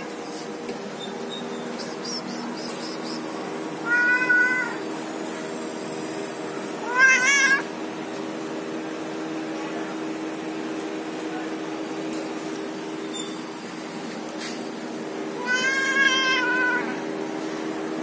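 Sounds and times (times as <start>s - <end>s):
steady low hum: 0.0s - 18.0s
cat meowing: 3.8s - 4.8s, 6.8s - 7.7s, 15.4s - 17.0s.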